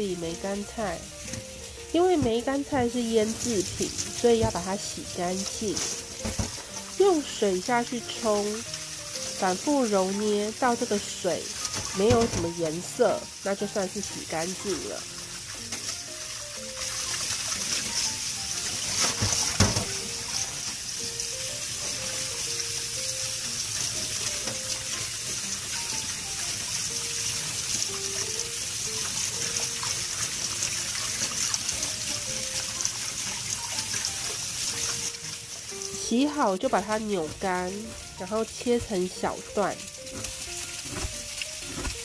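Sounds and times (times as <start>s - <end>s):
quiet background music: 0.0s - 42.0s
hands squeezing wet greens: 0.4s - 42.0s
tap water splashing into bowl: 5.7s - 7.0s, 11.5s - 12.7s, 18.8s - 20.8s.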